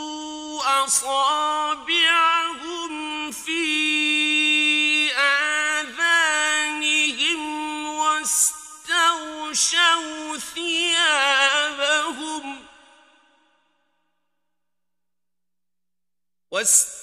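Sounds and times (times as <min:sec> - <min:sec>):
man chanting recitation: 0:00.0 - 0:13.0, 0:16.6 - 0:17.0.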